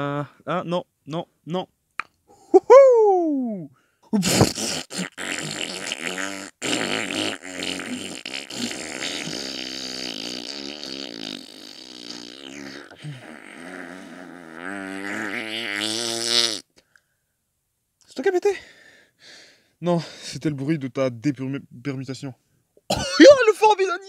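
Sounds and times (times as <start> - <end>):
fart noise: 4.1 - 16.7.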